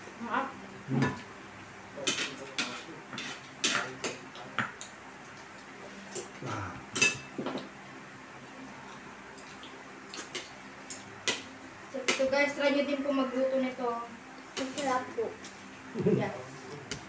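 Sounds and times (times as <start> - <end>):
cutlery clinking on plates: 2.0 - 4.7, 7.0 - 7.7.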